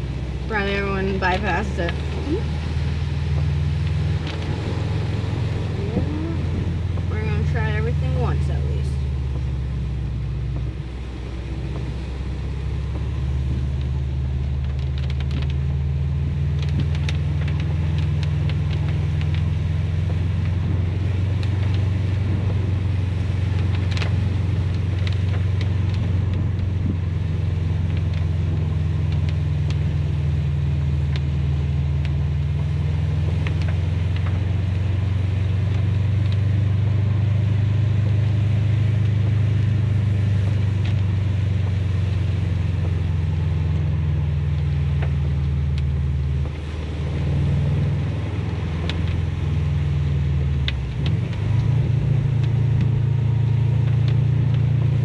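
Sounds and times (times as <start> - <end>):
car engine droning: 0.0 - 55.0
road noise: 0.0 - 55.0
light ticks: 12.9 - 15.6, 16.5 - 22.6, 23.4 - 30.4, 31.0 - 31.3, 31.9 - 36.9, 40.3 - 55.0.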